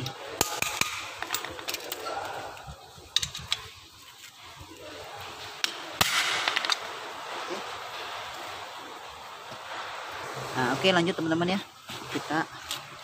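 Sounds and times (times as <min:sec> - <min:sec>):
metal parts rattling: 0:00.7 - 0:02.1.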